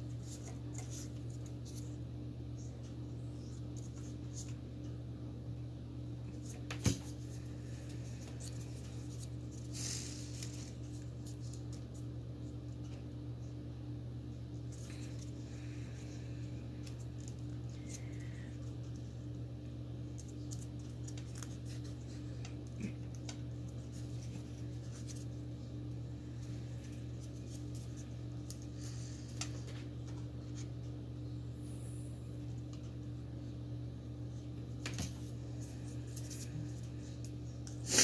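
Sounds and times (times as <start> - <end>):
steady low hum: 0.0 - 38.0
paper rustling and crinkling: 6.3 - 12.0, 20.1 - 25.4.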